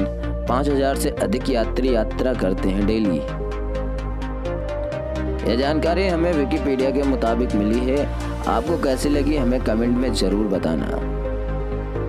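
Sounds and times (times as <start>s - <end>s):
electronic music with steady beat: 0.0s - 12.0s.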